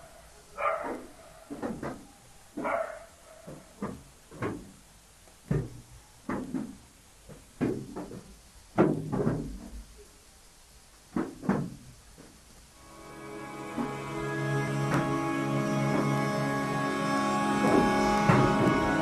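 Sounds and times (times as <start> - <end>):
irregular knocks and thumps: 0.8 - 2.7, 3.5 - 9.9, 11.1 - 12.4.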